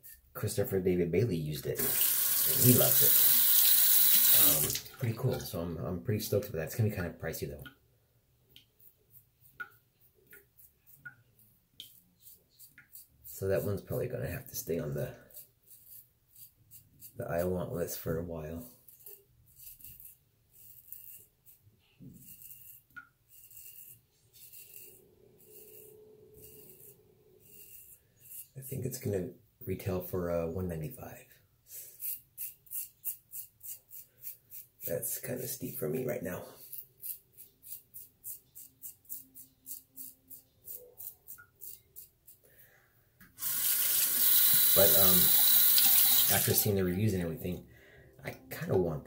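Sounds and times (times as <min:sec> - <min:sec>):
water running into sink: 0:01.8 - 0:05.4, 0:43.4 - 0:46.8
razor scraping stubble: 0:14.6 - 0:17.5, 0:18.7 - 0:29.1, 0:31.9 - 0:42.4, 0:43.4 - 0:47.4.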